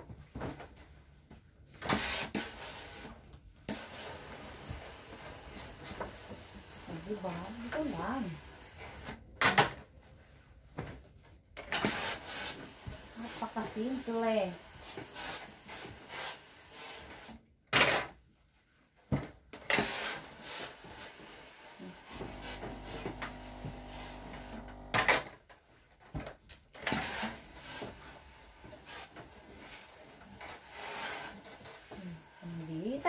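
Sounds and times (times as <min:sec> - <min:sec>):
electric buzz: 0:21.8 - 0:25.1.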